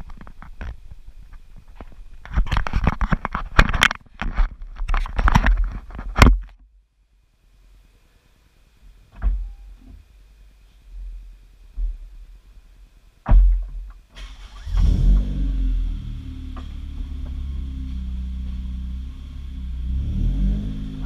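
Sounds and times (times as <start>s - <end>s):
sharp thump: 13.2s - 13.9s.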